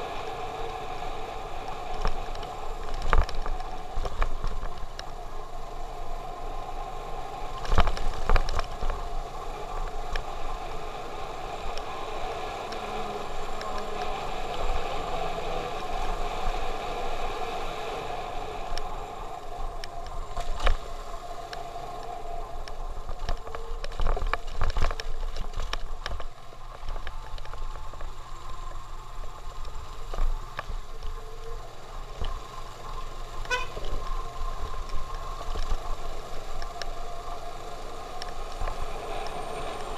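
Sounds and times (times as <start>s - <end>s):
motorcycle engine running: 27.1s - 39.9s.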